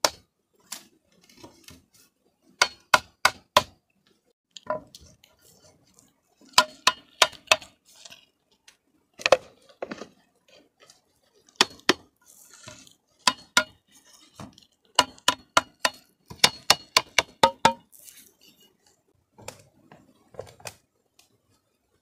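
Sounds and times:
machete striking bamboo: 2.6 - 3.8, 6.6 - 7.7, 11.6 - 12.0, 13.3 - 13.8, 15.0 - 17.9.

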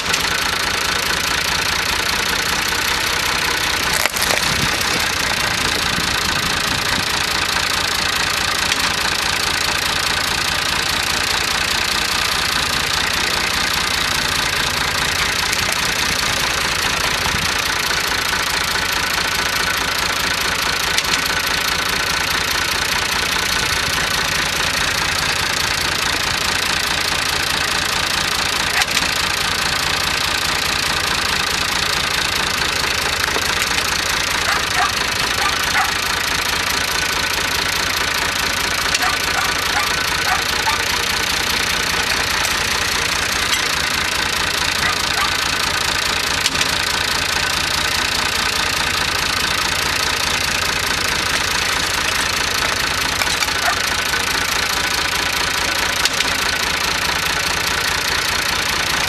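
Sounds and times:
tractor engine idling: 0.0 - 59.0.

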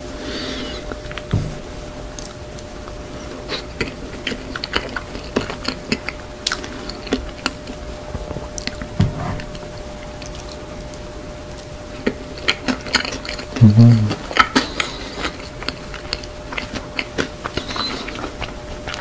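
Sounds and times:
chewing and mouth clicks: 2.1 - 7.8, 8.5 - 8.9, 10.1 - 19.0.

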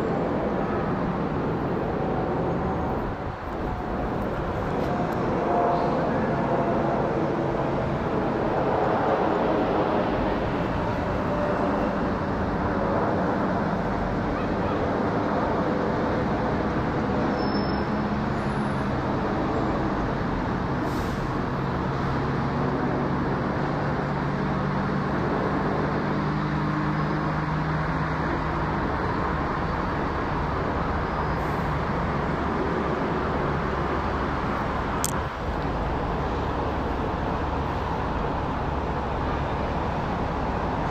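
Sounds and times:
airliner engine rumble overhead: 0.0 - 18.0, 19.0 - 40.9
road traffic: 0.0 - 40.9.

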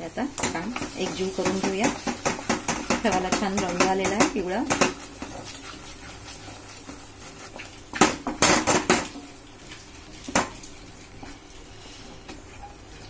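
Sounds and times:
spatula scraping a pan: 0.6 - 8.9, 11.1 - 13.0.

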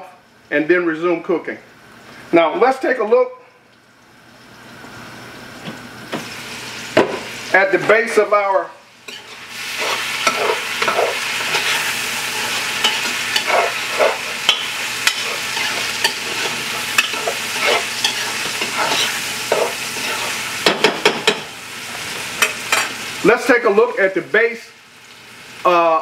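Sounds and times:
vegetables sizzling in a pot: 3.8 - 26.0
spoon scraping and stirring: 9.1 - 20.4.

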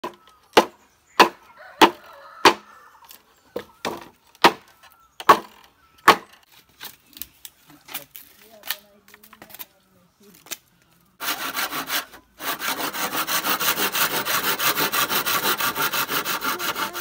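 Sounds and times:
hatchet chopping bamboo: 0.0 - 2.6, 3.8 - 6.4.

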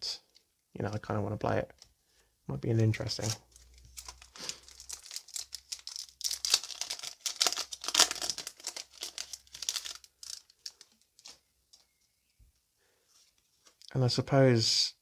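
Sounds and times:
foil wrapper crinkling and tearing: 3.1 - 11.4.

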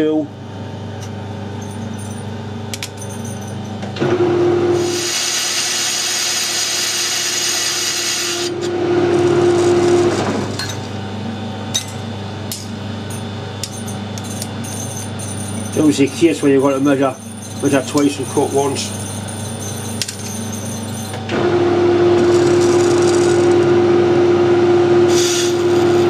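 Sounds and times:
metal lathe humming: 1.0 - 26.0
lathe tool ringing tone: 13.0 - 26.0.

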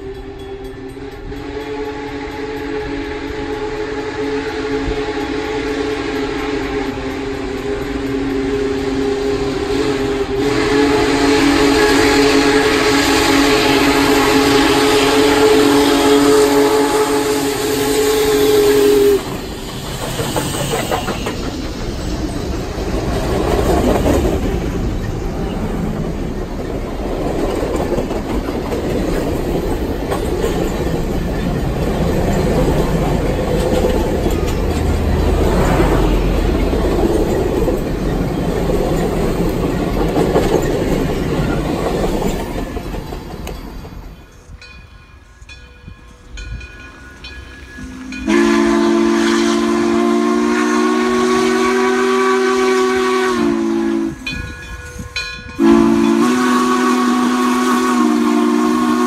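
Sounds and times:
steam locomotive whistle: 0.0 - 24.9, 29.5 - 41.6, 45.4 - 59.0
steam train passing: 0.0 - 59.0
wheels clicking over rail joints: 18.7 - 45.7.

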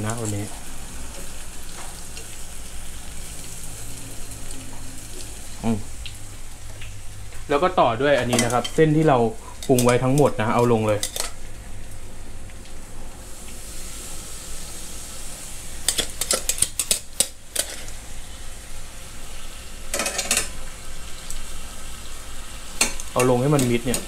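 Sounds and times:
noodles sizzling in a pot: 0.0 - 24.0
tongs clicking against pot: 9.6 - 10.3.

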